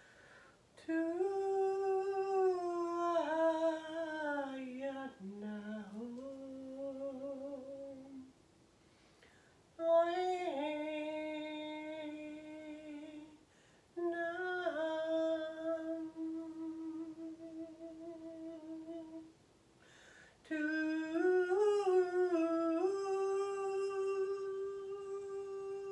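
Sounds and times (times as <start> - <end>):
woman humming long notes: 14.0 - 19.3, 20.5 - 25.9.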